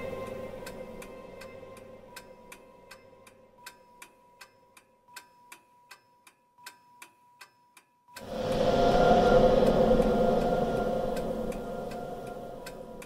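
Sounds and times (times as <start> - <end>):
faint held tone: 8.2 - 13.0
loud whoosh: 8.2 - 13.0.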